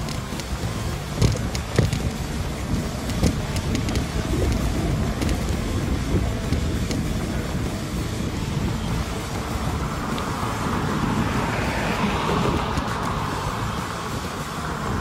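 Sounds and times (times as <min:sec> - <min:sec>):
steady low rumble: 0:00.0 - 0:15.0
car driving past: 0:09.5 - 0:15.0.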